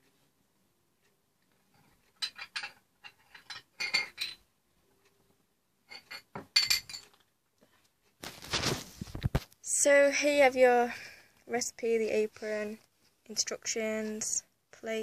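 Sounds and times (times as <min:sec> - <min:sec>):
toy cups and plates clinking: 0:02.1 - 0:04.4, 0:05.9 - 0:07.3.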